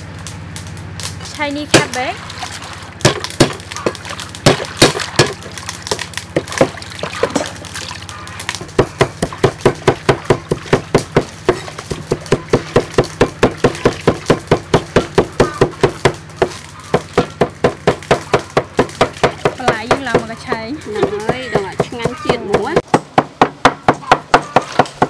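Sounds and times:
water sloshing in metal bowl: 0:01.8 - 0:15.0
cleaver chopping on wooden board: 0:03.0 - 0:05.4, 0:08.7 - 0:25.0.

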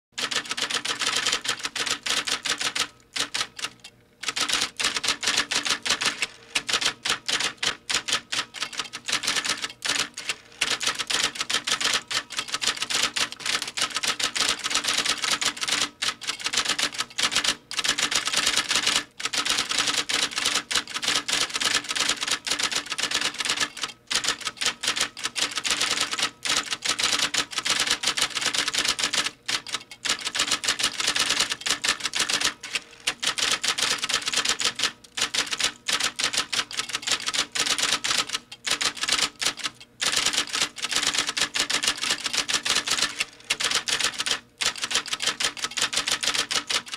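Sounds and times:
typewriter keys clacking: 0:00.2 - 0:46.9.

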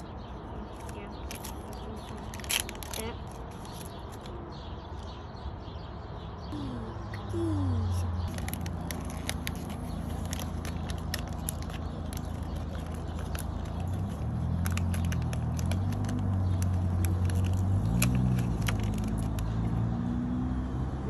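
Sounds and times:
plastic wrapper crinkling: 0:00.8 - 0:04.2, 0:08.2 - 0:19.6.

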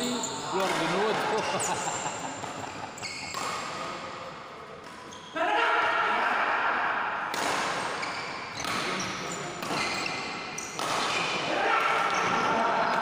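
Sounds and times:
rackets striking shuttlecock: 0:07.3 - 0:08.0, 0:08.6 - 0:11.2.

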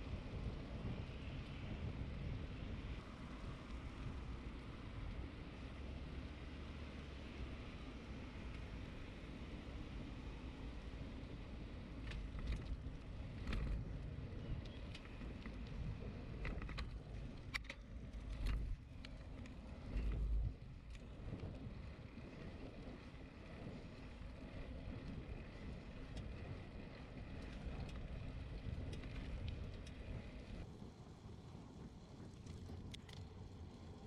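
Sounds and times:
low road rumble: 0:00.0 - 0:34.0
wind buffeting microphone: 0:08.3 - 0:34.0
small clicks and rattles: 0:11.2 - 0:30.7, 0:31.8 - 0:34.0.

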